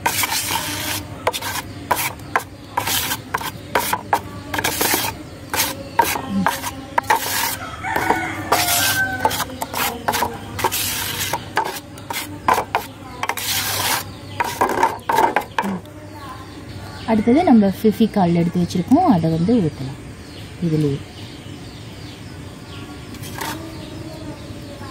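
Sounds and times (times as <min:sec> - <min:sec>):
knife scraping cement in steel bowl: 0:00.0 - 0:15.7, 0:23.2 - 0:23.8.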